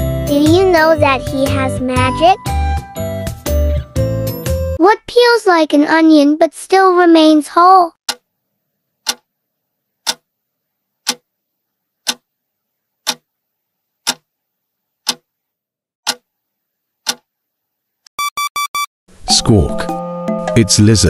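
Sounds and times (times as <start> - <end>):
clock-like timer ticks: 8.1 - 8.3, 9.0 - 9.3, 10.0 - 10.3, 11.0 - 11.3, 12.0 - 12.2, 13.0 - 13.2, 14.0 - 14.2, 15.0 - 15.3, 16.0 - 16.3, 17.0 - 17.2.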